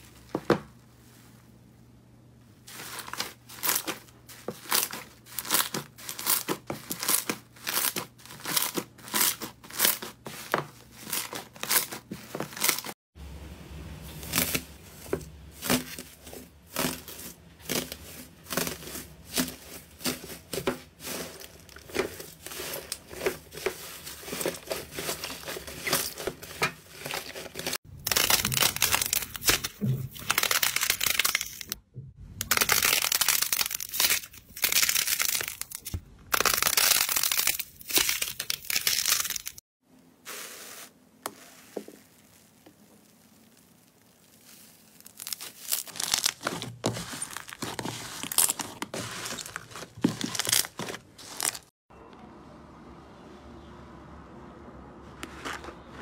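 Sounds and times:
foil slime crinkling: 2.7s - 13.0s, 14.1s - 31.8s, 32.4s - 39.6s, 40.2s - 51.7s
slime tearing with crackle: 42.0s - 51.7s.

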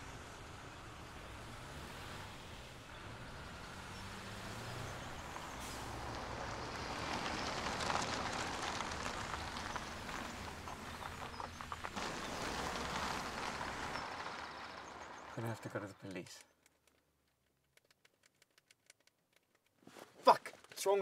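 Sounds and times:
car driving on tarmac: 0.0s - 19.7s.

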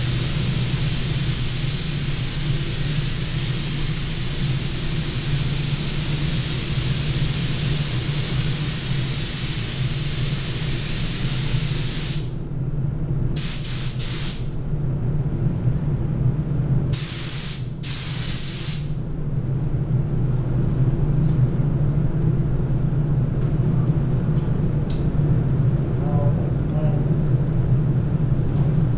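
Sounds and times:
spray gun hissing: 0.0s - 12.4s, 13.4s - 14.5s, 17.0s - 18.9s
steady low hum: 0.0s - 28.9s.

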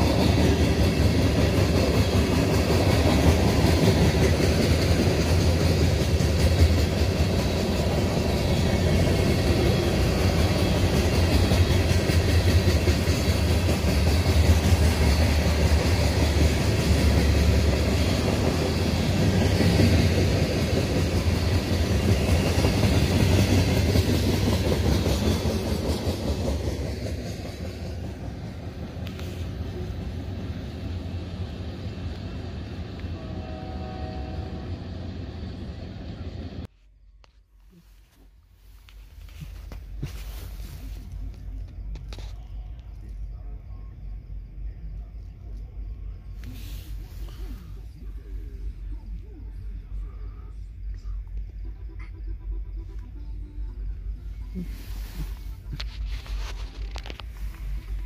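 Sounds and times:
wheels clacking over rail joints: 0.0s - 29.8s
freight train rumbling past: 0.0s - 36.7s, 38.6s - 58.0s.

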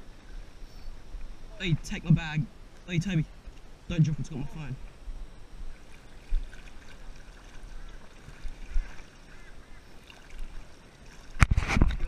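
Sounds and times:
water sloshing around wading person: 5.6s - 12.0s.

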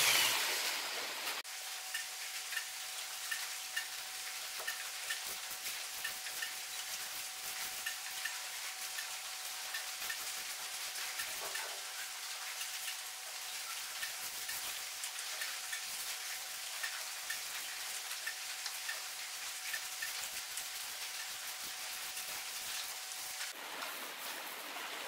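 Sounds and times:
paint roller crackling: 0.0s - 1.4s.

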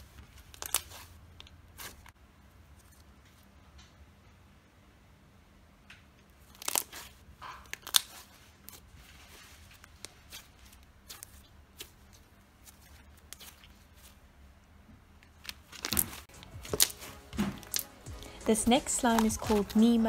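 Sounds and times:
slime sticky clicks and pops: 17.6s - 17.9s.

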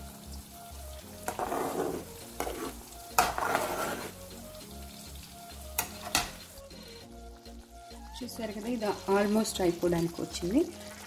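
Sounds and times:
spatula stirring thick gravy: 1.2s - 4.4s.

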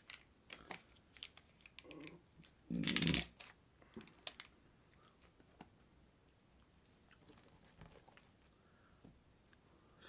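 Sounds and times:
plastic cup clicks and crinkles: 0.0s - 4.6s.

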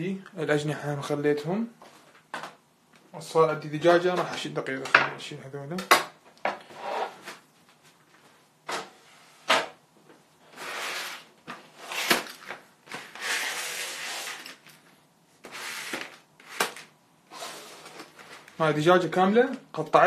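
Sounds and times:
plastic trays scraping and rustling: 10.5s - 14.8s, 15.4s - 18.7s.

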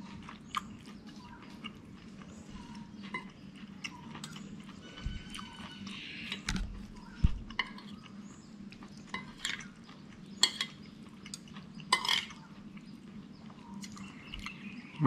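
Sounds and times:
cutlery clinking on plate: 10.4s - 10.8s, 11.9s - 12.4s.

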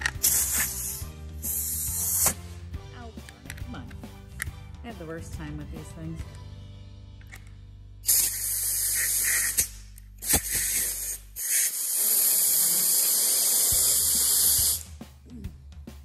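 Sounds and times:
compressed air hissing: 0.0s - 2.6s, 8.0s - 15.0s.

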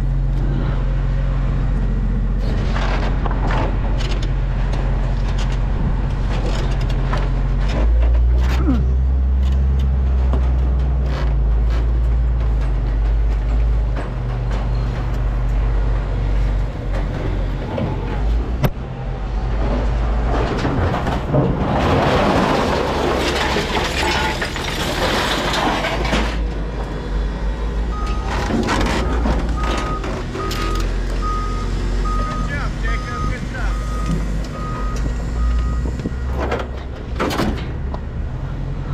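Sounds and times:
reversing alarm beeping: 29.0s - 36.3s.

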